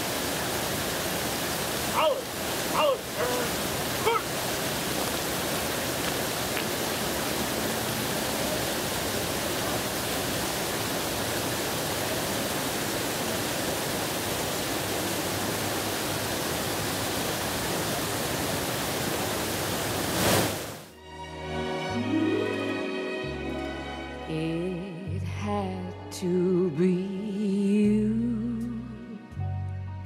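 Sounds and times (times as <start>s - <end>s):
fountain water splashing: 0.0s - 20.9s.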